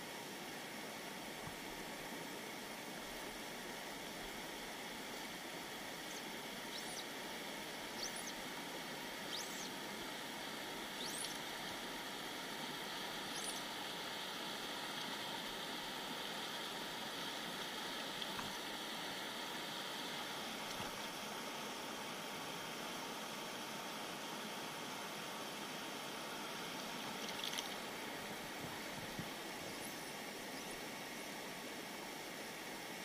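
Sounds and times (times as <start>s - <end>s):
river running over stones: 0.0s - 33.0s
short high squeaks: 11.0s - 11.4s.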